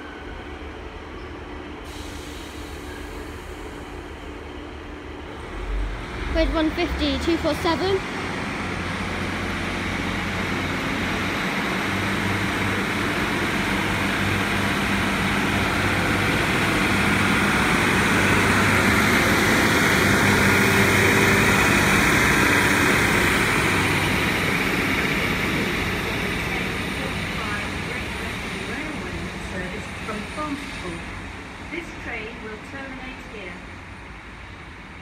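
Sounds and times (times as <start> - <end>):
diesel train engine humming: 0.0 - 35.0.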